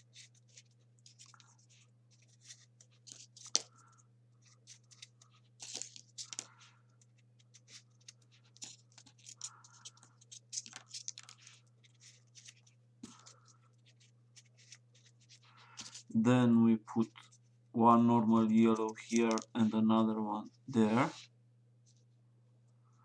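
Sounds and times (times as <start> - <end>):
paper rustling and scratching: 0.0 - 16.2, 18.2 - 19.9
low steady hum: 0.0 - 23.0.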